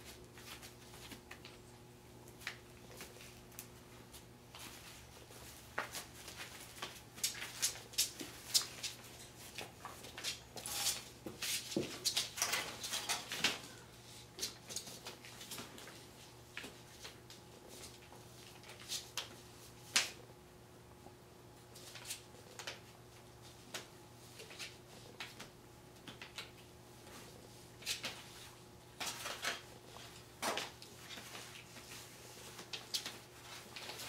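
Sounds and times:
puppies scuffling: 0.0s - 19.1s
faint steady hum: 0.0s - 34.0s.

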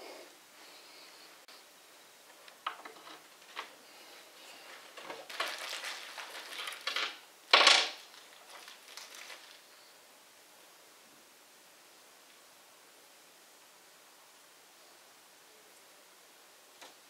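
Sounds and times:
rustling handling noise: 2.2s - 9.9s.

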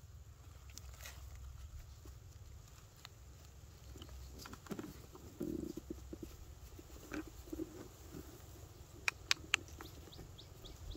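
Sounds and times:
hands digging in dry soil: 0.4s - 10.9s
faint clicks: 9.0s - 10.2s.

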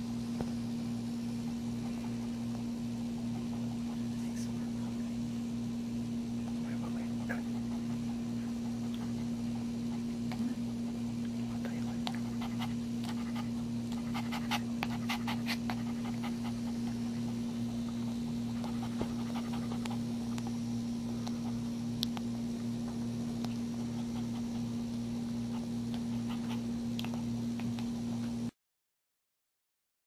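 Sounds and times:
low electrical hum: 0.0s - 28.6s
dog panting: 3.2s - 4.5s, 6.4s - 21.8s, 23.5s - 28.3s.

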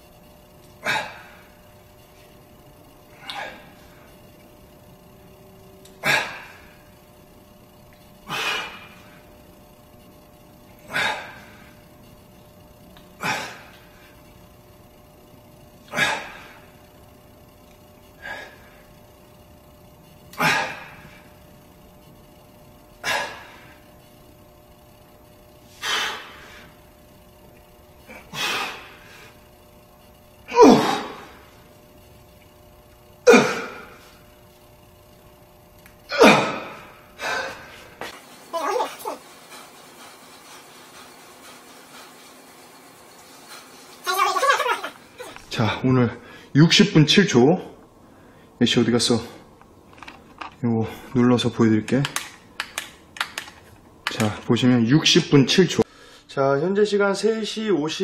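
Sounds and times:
man exhaling forcefully: 25.8s - 26.7s.

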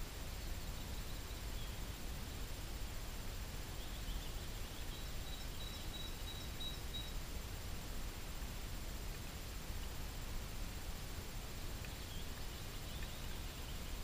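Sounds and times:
low rumble and hiss: 0.0s - 14.0s
faint high bird chirps: 0.4s - 1.9s, 3.7s - 7.2s, 11.8s - 14.0s.

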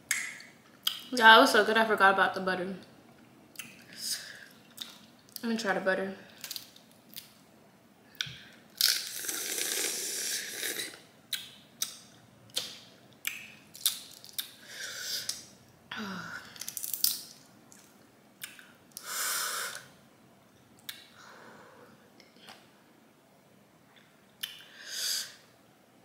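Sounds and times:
crawfish shells snapping: 16.6s - 19.0s.

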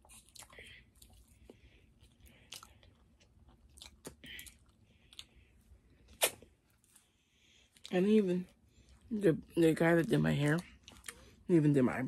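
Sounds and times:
person chewing crunchy food: 0.0s - 7.9s, 10.6s - 11.5s
wet mouth clicks: 6.1s - 6.5s.

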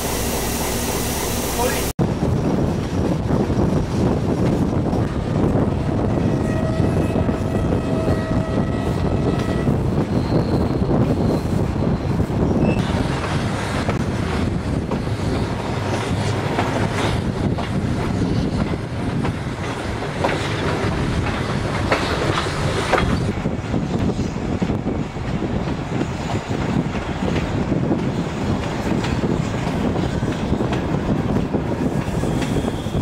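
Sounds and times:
train coaches rumbling: 0.0s - 33.0s.

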